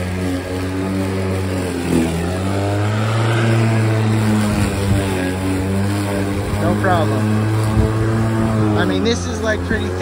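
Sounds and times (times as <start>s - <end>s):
electric lawnmower cutting grass: 0.0s - 10.0s.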